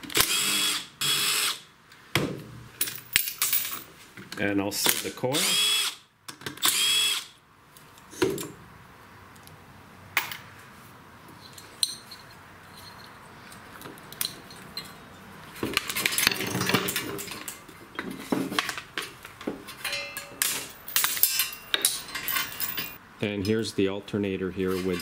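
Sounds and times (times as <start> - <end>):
metal engine parts clinking: 11.4 - 23.0, 24.7 - 25.0.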